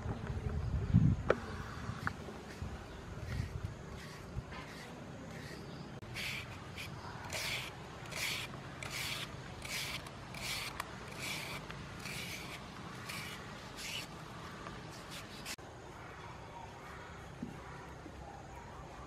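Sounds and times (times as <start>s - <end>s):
peeler scraping a banana: 2.4s - 15.6s.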